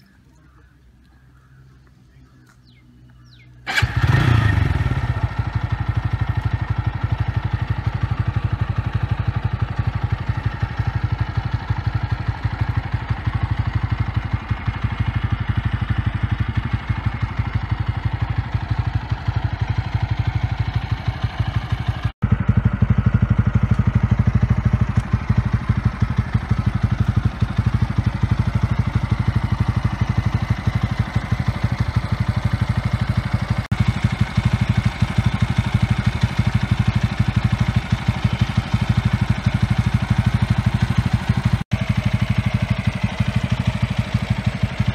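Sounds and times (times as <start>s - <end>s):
motorcycle engine idling: 0.0s - 44.9s.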